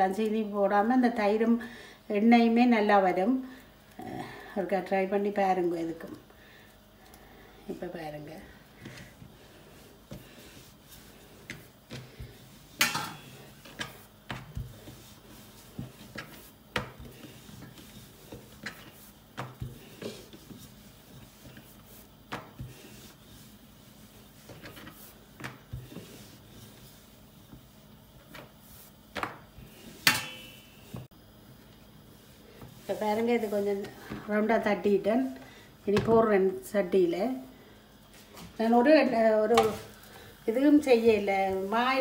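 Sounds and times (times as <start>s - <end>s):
hands patting dough on board: 13.5s - 23.4s.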